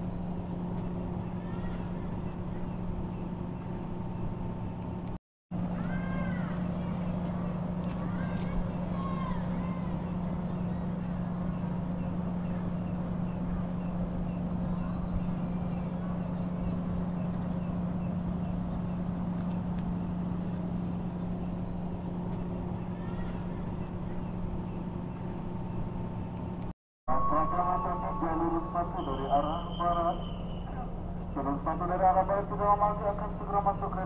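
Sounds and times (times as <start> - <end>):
idling train hum: 0.0 - 34.0.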